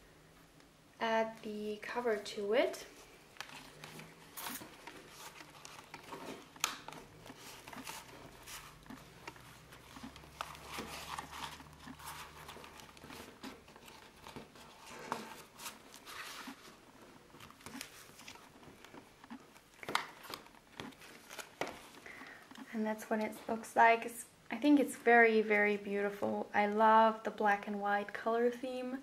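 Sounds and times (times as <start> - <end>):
cloth cover rustling and scraping: 1.8 - 22.0
plastic crinkling: 2.1 - 23.7.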